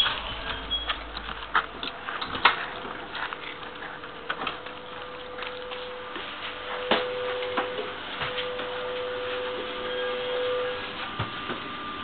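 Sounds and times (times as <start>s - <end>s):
steady tone from train carriage: 0.0s - 1.3s, 4.2s - 12.0s.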